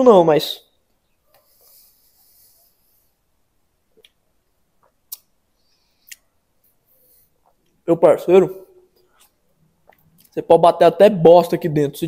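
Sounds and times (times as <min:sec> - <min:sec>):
lip and tongue clicks: 0:04.8 - 0:05.3.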